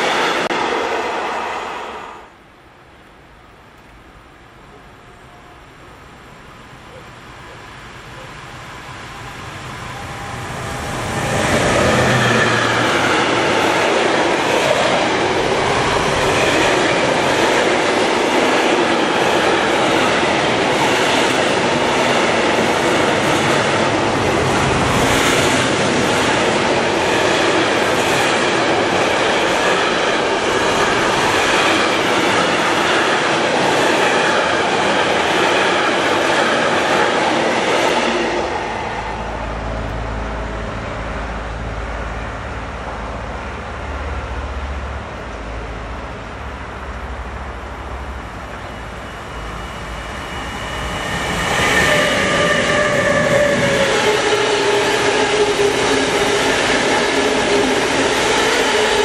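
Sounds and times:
locomotive high whine: 5.0s - 17.4s, 38.1s - 59.0s
low rumble: 38.7s - 47.4s.

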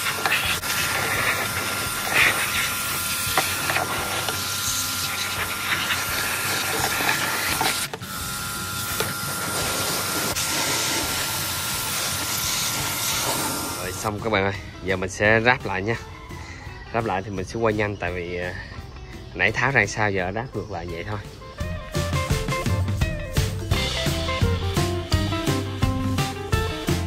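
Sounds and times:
water spray hissing: 0.0s - 14.5s.

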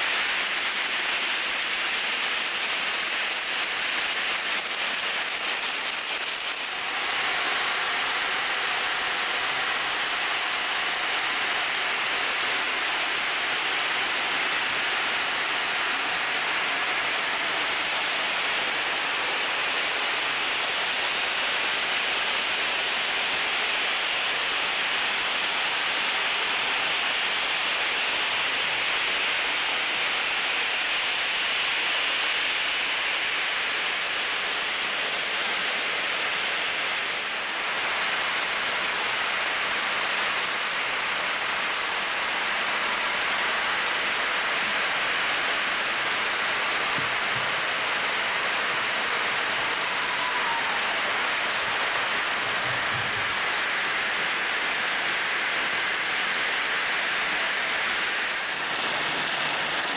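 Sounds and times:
glass marbles rumbling down tracks: 0.0s - 21.2s, 51.5s - 59.9s.

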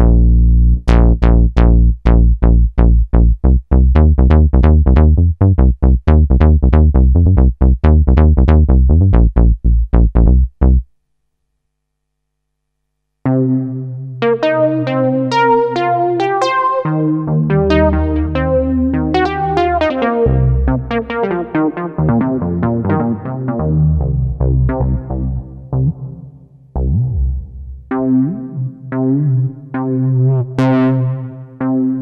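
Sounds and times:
deep synthesizer bass notes: 0.0s - 10.9s, 13.2s - 32.0s
sustained synthesizer tones: 14.3s - 26.2s.

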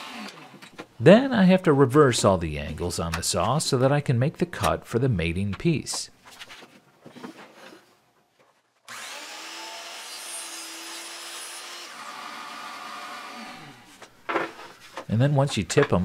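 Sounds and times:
miter saw cutting: 8.9s - 13.9s.

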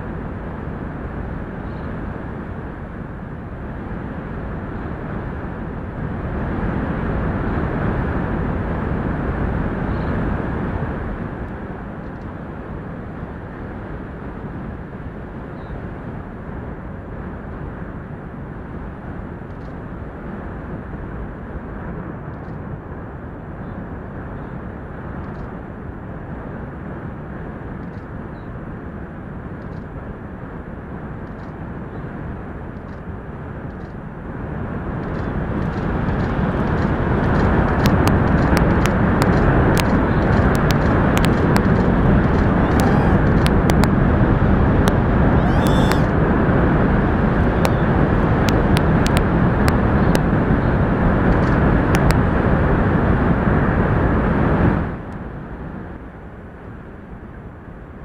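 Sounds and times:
wind roaring: 0.0s - 58.0s
heavy surf: 34.2s - 57.5s.

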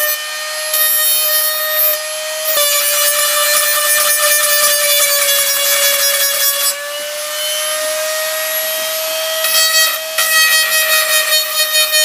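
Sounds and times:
sanding bit rasping on glass: 0.8s - 6.8s, 9.5s - 12.0s.

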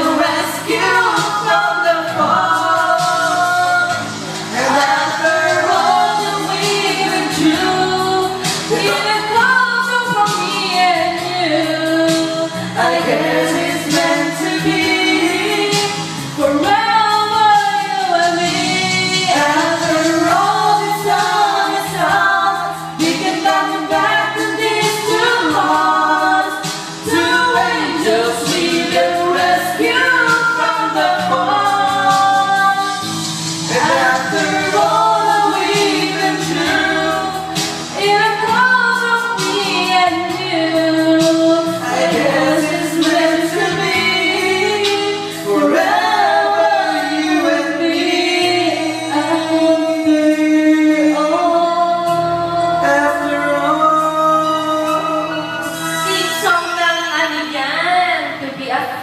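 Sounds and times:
woman singing into microphone: 0.0s - 33.1s, 33.7s - 59.0s
karaoke backing track: 0.0s - 59.0s
man singing into microphone: 8.5s - 9.7s, 33.7s - 37.4s, 41.3s - 56.0s.

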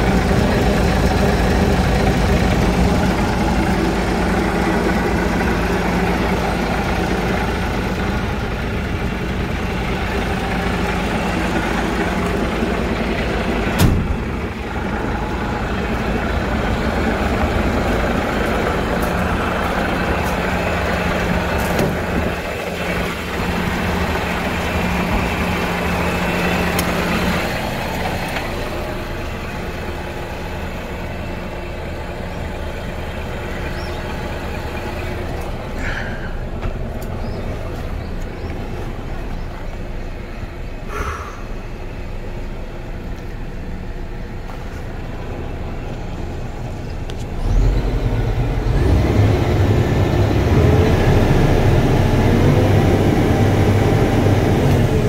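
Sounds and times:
truck engine revving: 0.0s - 30.5s, 47.1s - 55.0s
diesel truck engine idling: 0.0s - 55.0s.

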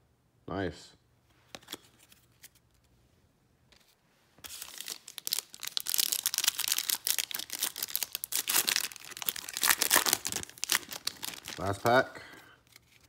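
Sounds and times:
foil wrapper crinkling and tearing: 4.5s - 12.0s.

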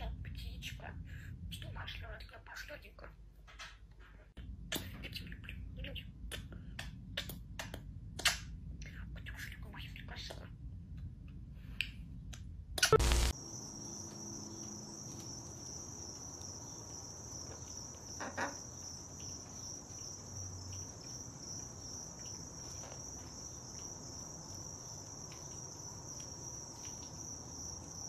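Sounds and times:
high-pitched insect trill: 13.0s - 28.0s.

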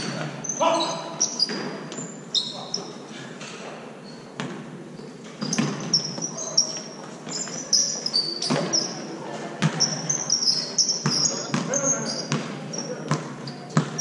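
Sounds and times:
sneakers squeaking: 0.0s - 14.0s
basketball bouncing on hardwood floor: 4.4s - 4.6s, 5.4s - 6.3s, 8.4s - 8.9s, 9.6s - 10.0s, 11.0s - 14.0s.

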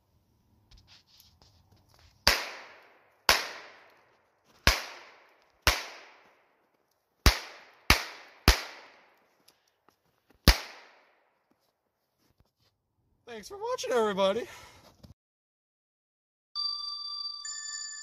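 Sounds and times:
revolver shots with ringing echo: 2.3s - 3.9s, 4.7s - 6.2s, 7.3s - 9.1s, 10.5s - 11.2s.

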